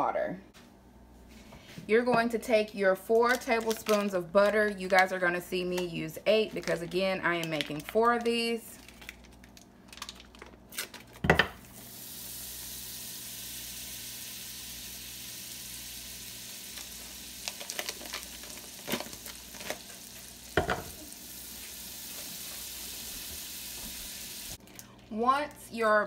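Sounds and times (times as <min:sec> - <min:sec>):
butter sizzling: 0:11.6 - 0:24.6.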